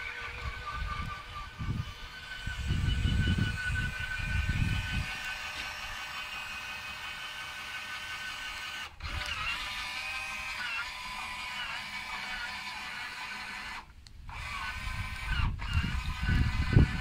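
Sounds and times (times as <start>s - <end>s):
drill motor whining: 0.0s - 17.0s.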